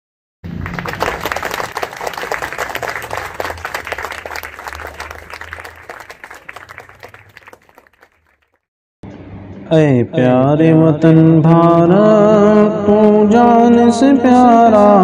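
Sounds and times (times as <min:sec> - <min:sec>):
people clapping: 0:00.5 - 0:08.6.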